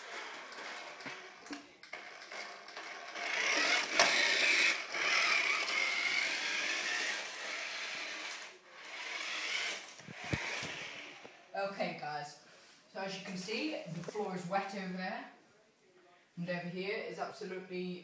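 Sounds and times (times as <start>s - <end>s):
toy car electric motor whining: 0.0s - 11.3s.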